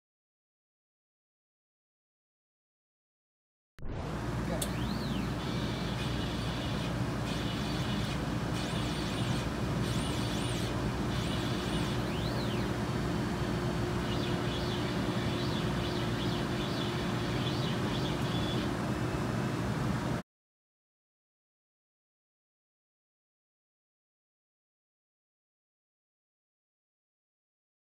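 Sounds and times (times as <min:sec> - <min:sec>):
motor whine changing pitch: 0:03.8 - 0:19.5
laser cutter humming: 0:03.8 - 0:20.2.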